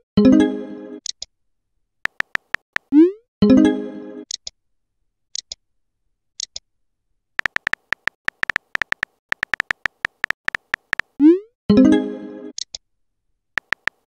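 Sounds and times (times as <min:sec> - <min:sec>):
phone keyboard typing clicks: 0:02.0 - 0:03.0, 0:07.4 - 0:11.2, 0:13.6 - 0:14.0.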